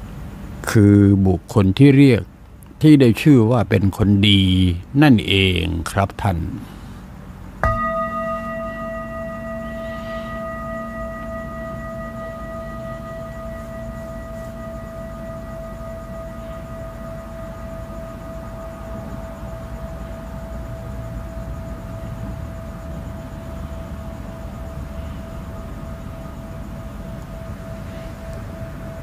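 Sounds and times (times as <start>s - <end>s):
singing bowl ringing: 7.6s - 29.0s.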